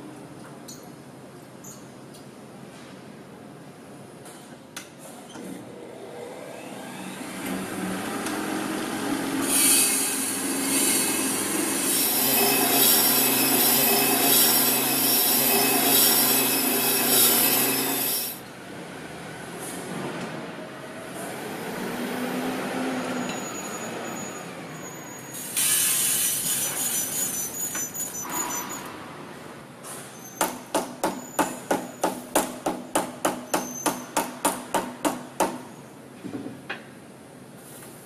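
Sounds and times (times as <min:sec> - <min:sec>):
machine running: 0:06.4 - 0:18.4
sharp metallic knocks: 0:30.4 - 0:35.7.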